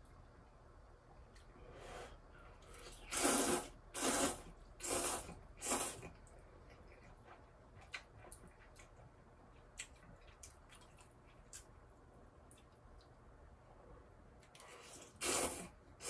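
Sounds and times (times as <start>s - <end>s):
person slurping noodles: 2.8s - 6.1s, 14.8s - 15.8s.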